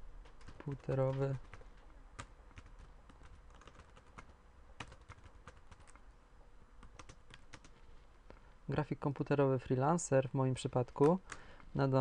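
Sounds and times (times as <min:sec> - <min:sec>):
faint keyboard typing: 0:00.2 - 0:06.1, 0:06.8 - 0:08.5, 0:10.6 - 0:11.8.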